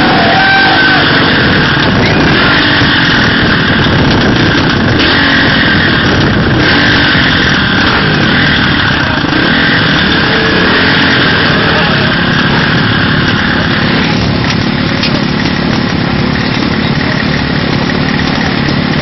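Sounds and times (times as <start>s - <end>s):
loud rushing water: 0.0s - 4.0s
dirt bike engine revving: 0.0s - 19.0s.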